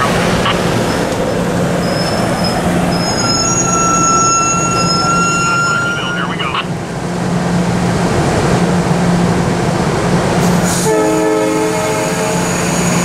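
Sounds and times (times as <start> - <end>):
steel wheels rolling on rail: 0.0 - 13.0
high-pitched wheel squeal: 1.8 - 6.3.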